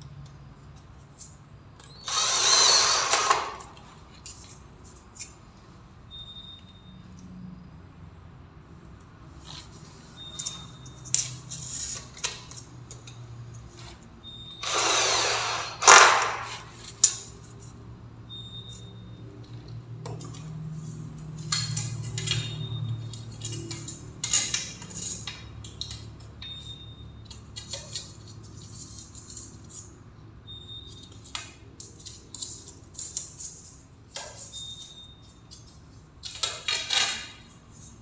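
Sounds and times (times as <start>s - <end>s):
cordless drill running: 1.9s - 3.7s, 14.6s - 16.4s.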